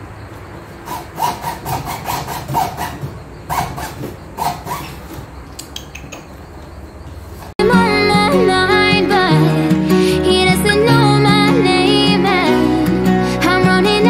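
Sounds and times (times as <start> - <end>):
bread knife sawing through board: 0.9 - 5.0.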